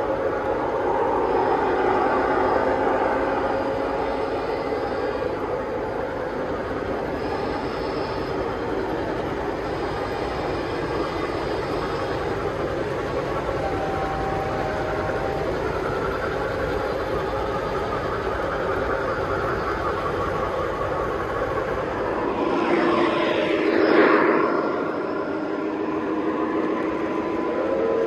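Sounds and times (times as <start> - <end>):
faint steady tones: 0.0 - 28.0
model trains rumbling on track: 0.0 - 28.0.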